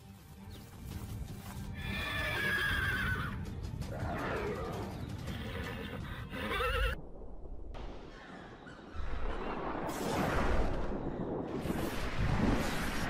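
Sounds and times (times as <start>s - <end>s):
background music: 0.0s - 7.0s
horse whinnying: 1.8s - 3.4s, 5.3s - 7.0s.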